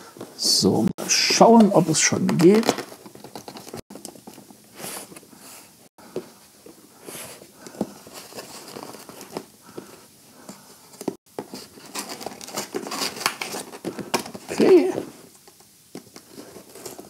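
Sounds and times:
cardboard scraping and rustling: 0:01.3 - 0:03.8, 0:07.0 - 0:10.0, 0:10.9 - 0:15.3, 0:16.0 - 0:17.0.

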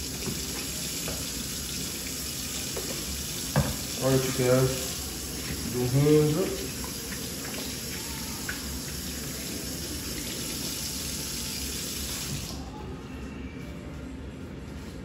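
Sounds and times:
tap running into metal sink: 0:02.7 - 0:04.0.

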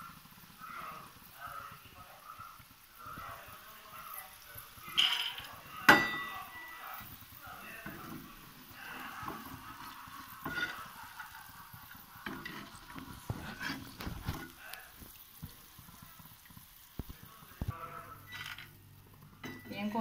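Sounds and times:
hot oil sizzling: 0:00.0 - 0:20.0
skimmer clinking against pan: 0:04.8 - 0:07.2, 0:10.4 - 0:11.0.

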